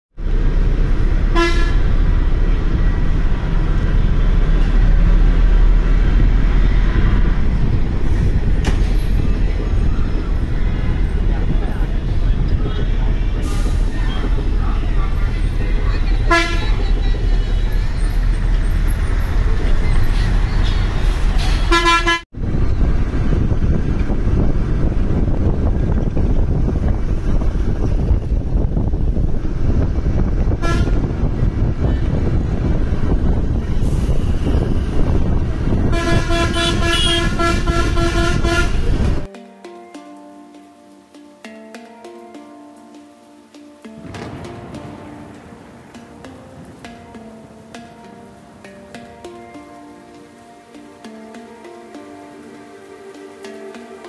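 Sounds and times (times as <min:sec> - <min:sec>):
bus rumbling: 0:00.1 - 0:39.3
vehicle horn toot: 0:01.3 - 0:01.9, 0:16.2 - 0:17.6, 0:21.6 - 0:22.2, 0:30.6 - 0:31.0, 0:35.8 - 0:39.1.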